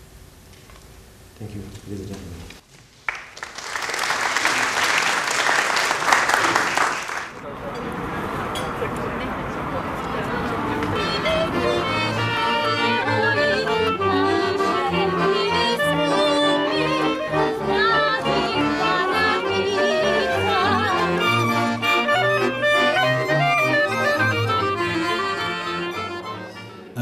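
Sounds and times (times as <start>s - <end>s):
woman singing: 10.4s - 21.4s
violins playing a quick melody: 10.5s - 27.0s.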